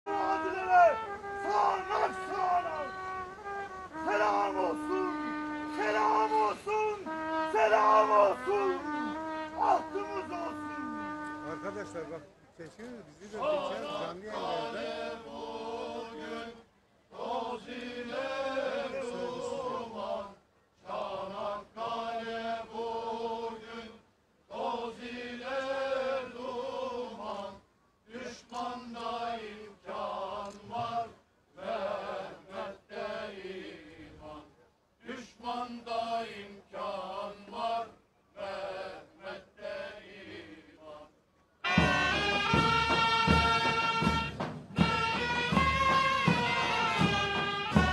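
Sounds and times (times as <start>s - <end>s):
man chanting: 0.1s - 3.0s, 4.0s - 12.2s
band playing with drums: 41.7s - 47.9s.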